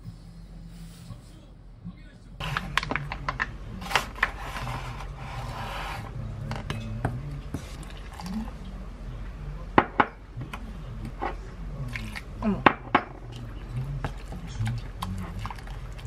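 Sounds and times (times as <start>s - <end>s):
wooden spoon scraping glass bowl: 3.8s - 6.2s.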